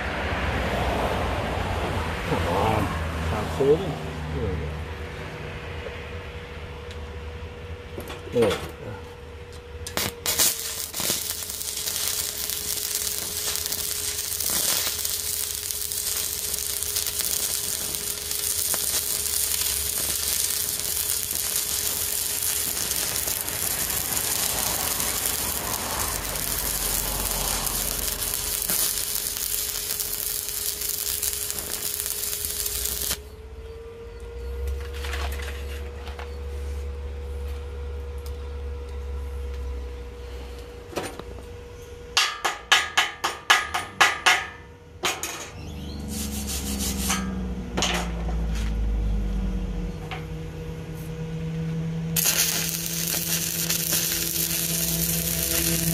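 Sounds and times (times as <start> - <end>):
welder whine: 6.8 - 41.5, 45.0 - 55.9
welding arc crackling and sizzling: 9.8 - 33.3, 46.0 - 47.3, 52.2 - 55.9.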